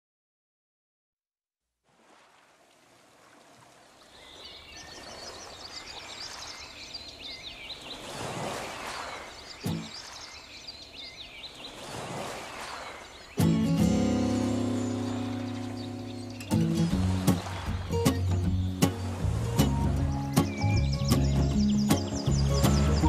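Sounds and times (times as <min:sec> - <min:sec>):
small birds chirping: 0:04.0 - 0:08.2, 0:08.8 - 0:23.0
ocean surf washing onto beach: 0:07.7 - 0:10.5, 0:11.5 - 0:20.7
music: 0:13.4 - 0:23.0.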